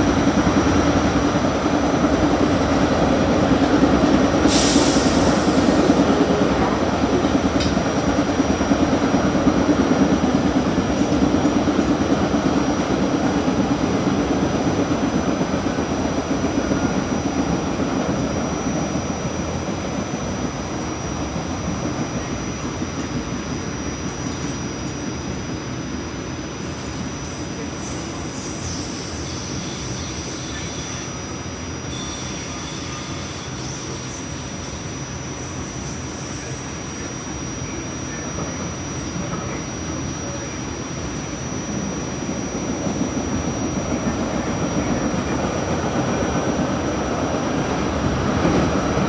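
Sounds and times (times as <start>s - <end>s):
light-rail car rumbling on track: 0.0s - 49.0s.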